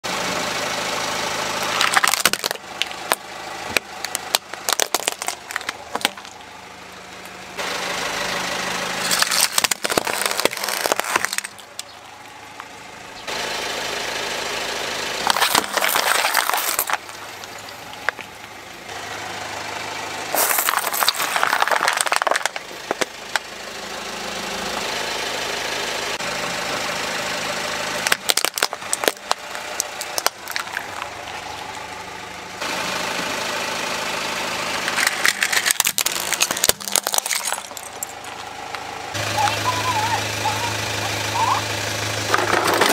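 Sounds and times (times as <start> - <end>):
car engine idling: 0.0 - 42.9
plastic cracking and snapping: 1.8 - 3.2, 3.8 - 6.4, 9.1 - 11.9, 15.3 - 17.1, 20.6 - 23.1, 28.0 - 31.1, 35.0 - 38.2.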